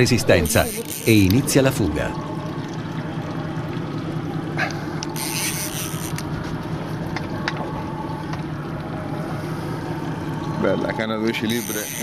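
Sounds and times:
boat engine hum: 0.0 - 12.0
fishing reel drag rasping: 0.4 - 1.3, 5.1 - 6.2, 11.4 - 12.0.

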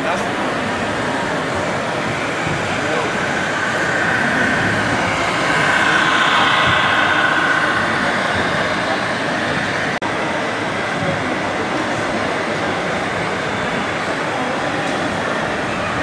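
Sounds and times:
exhibition hall din: 0.0 - 12.8.

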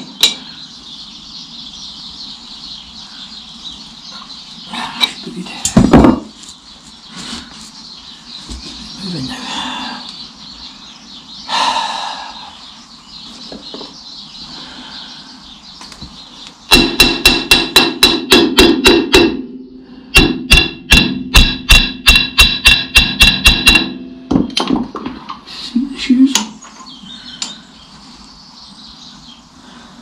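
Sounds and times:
hammer blows on metal: 16.7 - 24.6.

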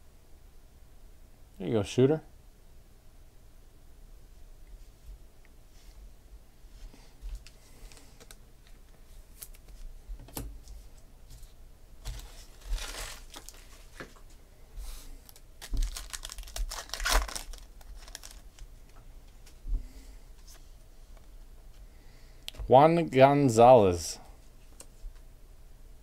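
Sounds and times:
wrapper crinkling and tearing: 12.0 - 14.1, 15.2 - 18.7.

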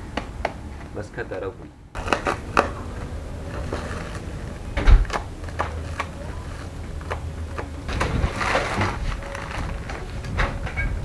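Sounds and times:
low steady rumble: 0.0 - 11.0
plastic bag crinkling: 2.0 - 10.6.

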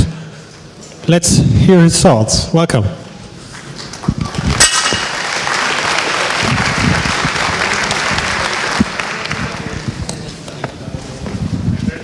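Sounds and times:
audience applauding: 3.5 - 10.2.

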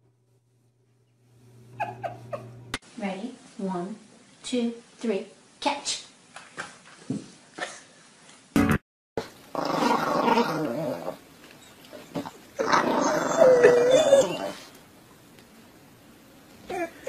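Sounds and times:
small dog growling: 9.5 - 11.2, 11.9 - 14.8
dog whining: 10.0 - 14.8.

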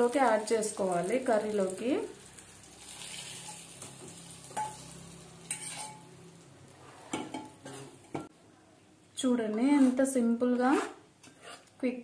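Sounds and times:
hot oil sizzling: 0.0 - 8.2
steel pan scraping: 4.6 - 6.1.

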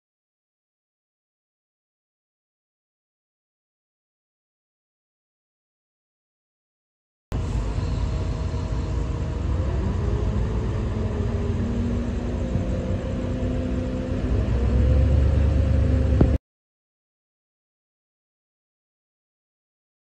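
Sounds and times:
heavy machinery diesel engines rumbling: 7.3 - 16.4.

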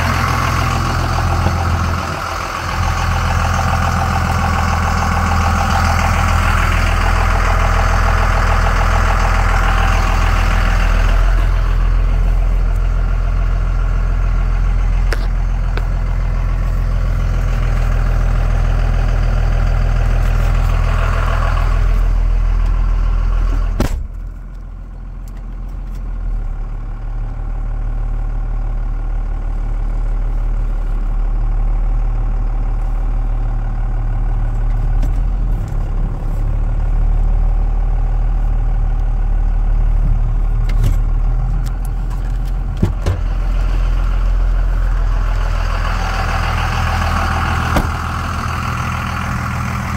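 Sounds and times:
pickup engine idling: 0.0 - 49.9
sharp clunk: 23.8 - 24.2.

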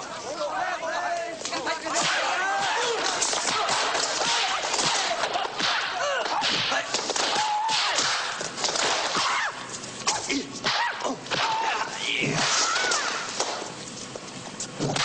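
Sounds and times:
punch and kick impacts: 2.0 - 9.4.

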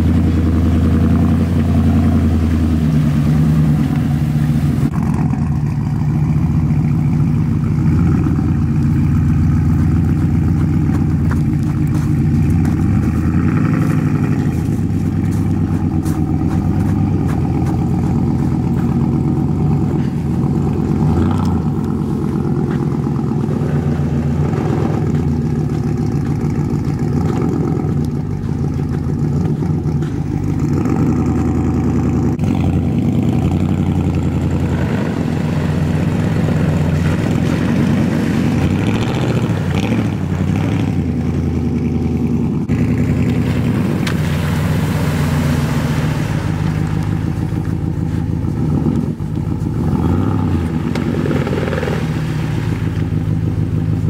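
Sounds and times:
truck engine revving: 0.0 - 54.0
water rushing hiss: 43.0 - 49.3, 50.2 - 54.0.

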